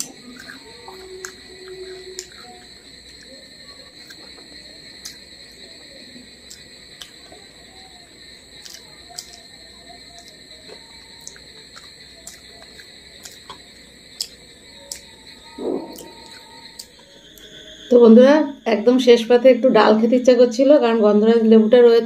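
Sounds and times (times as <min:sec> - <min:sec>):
person chewing and lip-smacking: 0:00.0 - 0:03.3, 0:03.9 - 0:05.6, 0:06.4 - 0:07.4, 0:08.5 - 0:17.0
steady high-pitched whine: 0:00.0 - 0:22.0.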